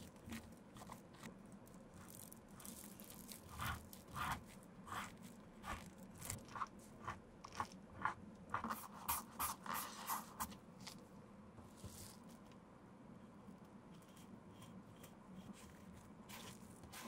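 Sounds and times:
metal spatula scraping leather: 2.0 - 11.0, 14.0 - 17.0.

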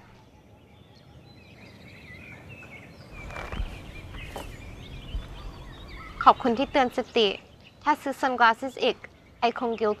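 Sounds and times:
small birds chirping: 0.0 - 10.0
brief rustles: 3.1 - 4.6.

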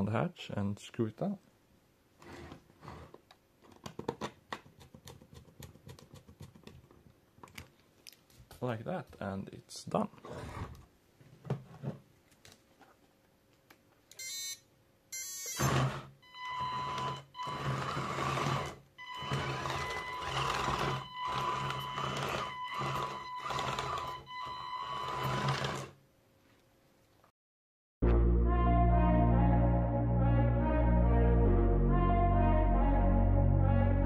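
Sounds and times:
electric motors whining: 15.4 - 26.0.

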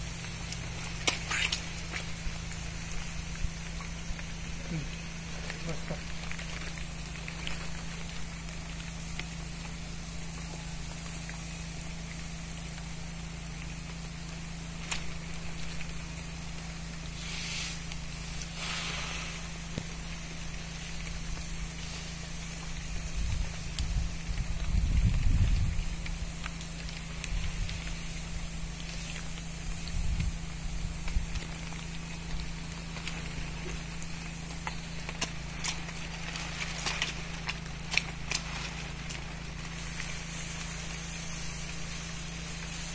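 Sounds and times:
pump motor droning: 0.0 - 42.9
spray hiss bursts: 16.9 - 23.8, 39.7 - 42.9.

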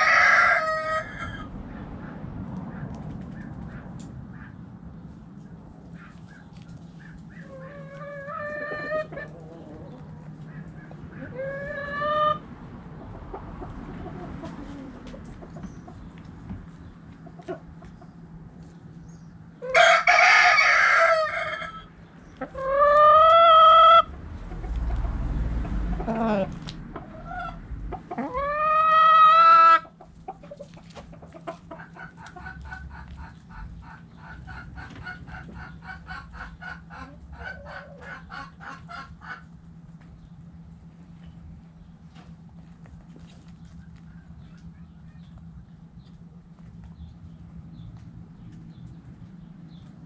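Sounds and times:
rooster crowing: 0.0 - 1.5, 19.6 - 21.9
hens clucking: 0.0 - 4.7, 5.3 - 50.0.

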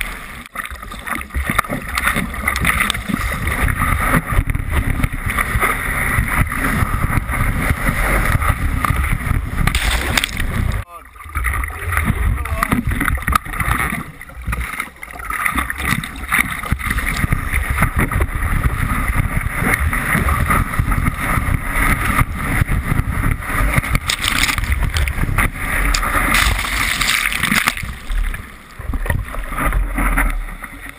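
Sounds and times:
water rushing and splashing: 0.0 - 30.9
wind buffeting microphone: 2.6 - 10.8, 15.8 - 29.7.

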